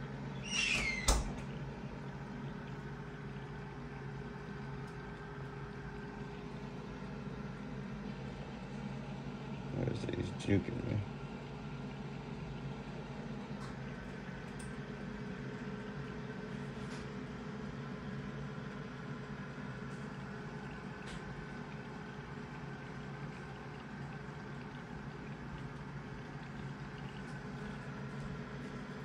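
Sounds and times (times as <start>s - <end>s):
filter motor hum: 0.0s - 29.0s
water trickling: 17.8s - 29.0s.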